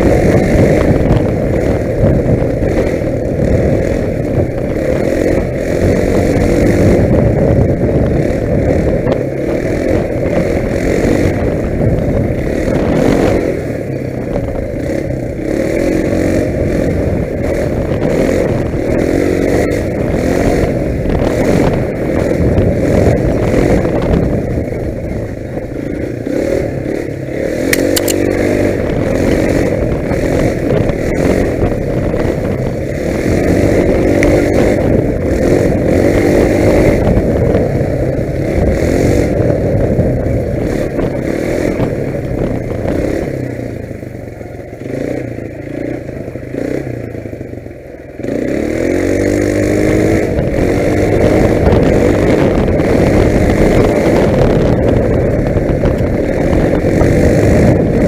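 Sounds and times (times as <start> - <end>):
quad bike engine revving: 0.0 - 58.0
sharp clicks or rattles: 27.7 - 28.4.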